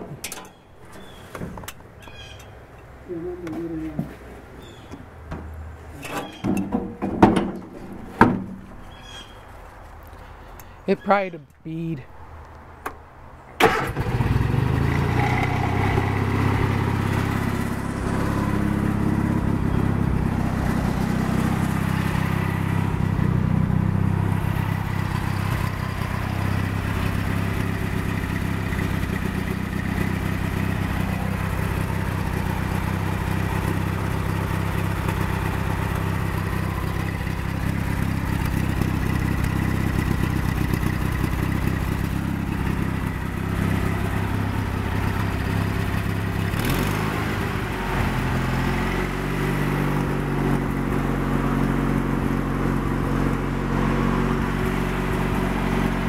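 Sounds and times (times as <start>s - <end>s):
garden tractor engine running: 13.5s - 56.0s.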